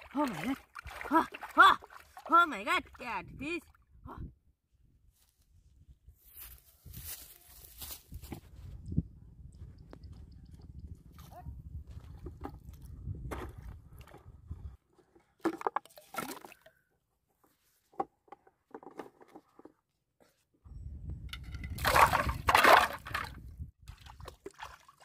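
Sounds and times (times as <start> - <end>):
feet splashing in muddy water: 0.0 - 3.0, 23.9 - 25.0.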